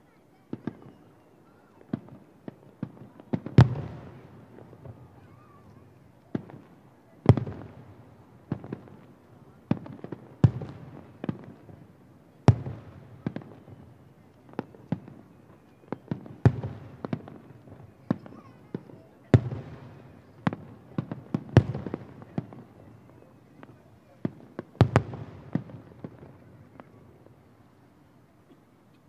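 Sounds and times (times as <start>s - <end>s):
distant fireworks booming: 1.9s - 27.8s.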